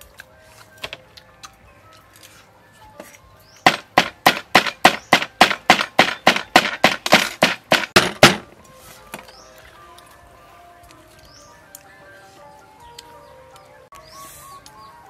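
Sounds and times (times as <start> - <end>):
knife chopping on wooden board: 3.6 - 8.4.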